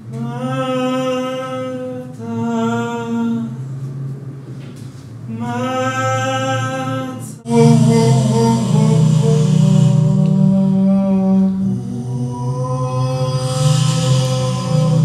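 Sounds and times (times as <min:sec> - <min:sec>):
low steady drone: 0:00.0 - 0:15.0.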